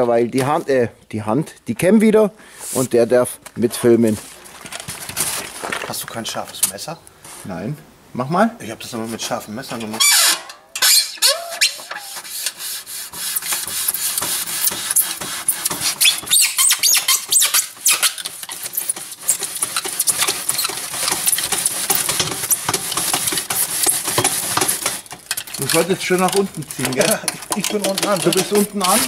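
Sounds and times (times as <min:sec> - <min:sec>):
wire squeaking through polystyrene: 0:09.8 - 0:29.0.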